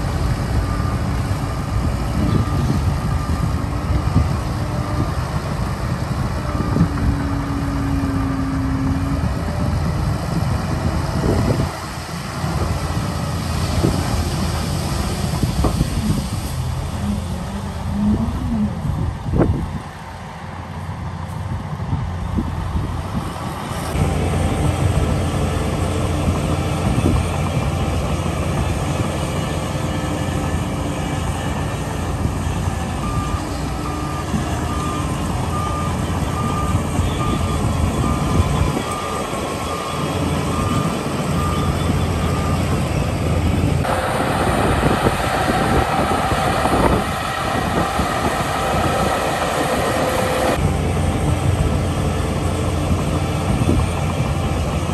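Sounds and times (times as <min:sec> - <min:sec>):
bulldozer pushing soil: 0:00.0 - 0:54.9
dump truck diesel engine: 0:00.0 - 0:54.9
reversing beeper: 0:29.8 - 0:43.1, 0:43.8 - 0:51.3.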